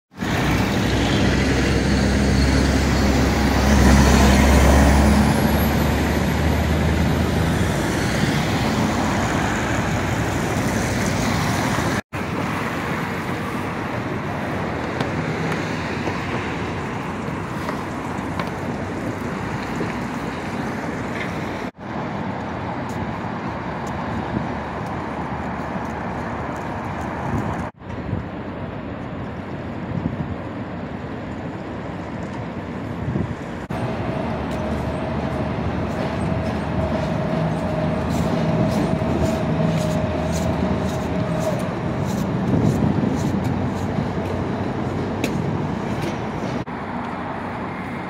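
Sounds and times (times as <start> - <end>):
steady traffic noise: 0.1 - 48.0
truck engine driving past: 0.2 - 11.7.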